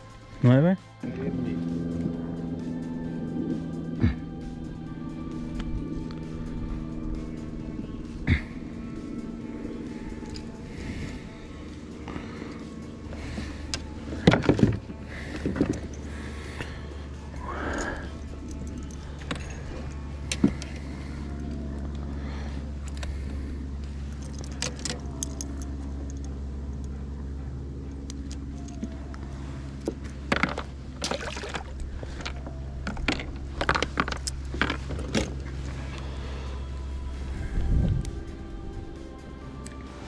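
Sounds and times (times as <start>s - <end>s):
steady low hum: 0.0s - 40.0s
metal pliers clicking and jingling: 17.7s - 21.6s, 24.1s - 27.0s, 27.9s - 29.2s.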